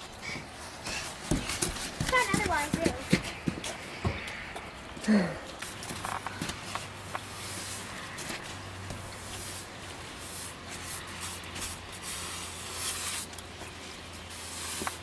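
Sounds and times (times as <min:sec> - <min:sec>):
hands brushing snow off surfaces: 0:09.2 - 0:15.0.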